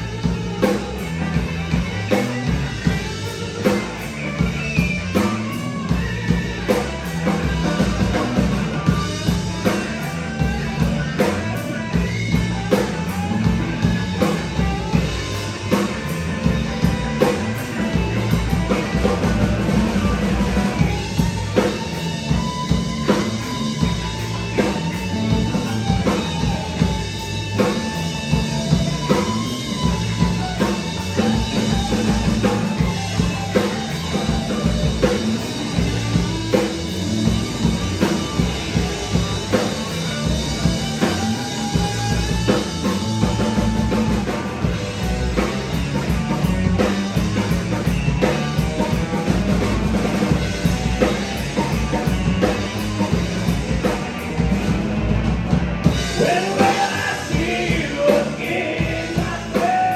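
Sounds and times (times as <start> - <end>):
distorted electric guitars: 0.0 - 59.9
drum kit beat: 0.0 - 59.9.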